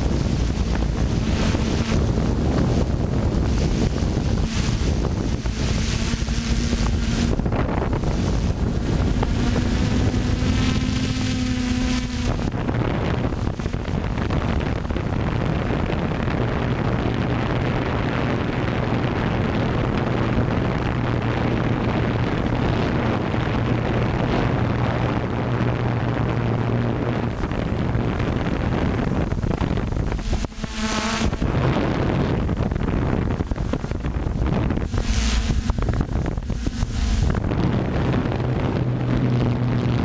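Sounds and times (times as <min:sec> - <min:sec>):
drone propellers humming: 0:00.0 - 0:40.0
wind on microphone: 0:00.0 - 0:40.0.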